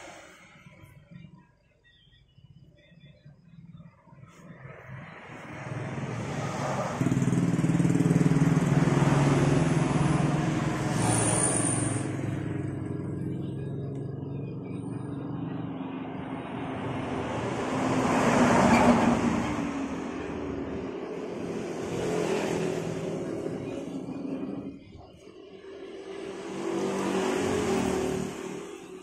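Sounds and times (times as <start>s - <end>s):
vehicle engine running: 2.6s - 18.0s
brief high squeal: 10.9s - 12.2s.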